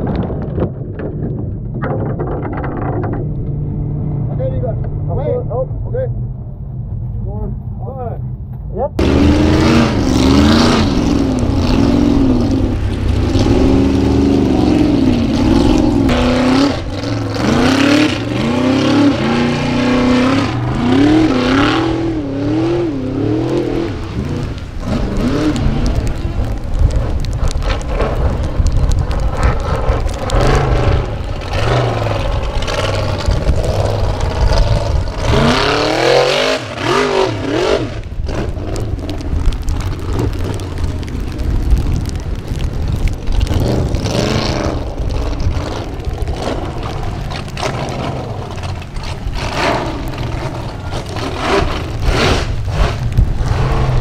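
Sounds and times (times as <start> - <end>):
buggy engine revving hard: 9.0 - 27.3, 29.1 - 40.6, 41.2 - 54.0.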